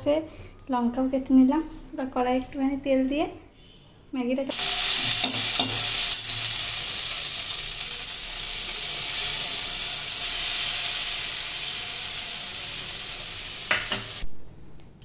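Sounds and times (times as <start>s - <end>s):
noodles sizzling in oil: 4.5s - 14.2s.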